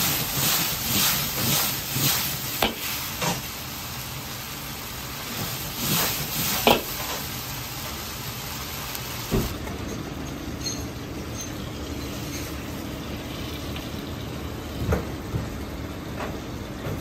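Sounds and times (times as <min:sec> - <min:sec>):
food sizzling in a wok: 0:00.0 - 0:09.5.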